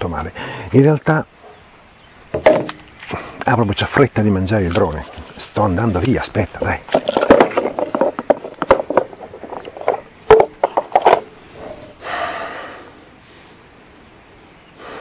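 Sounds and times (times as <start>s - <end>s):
knocks and clatters of gear: 4.6s - 11.3s.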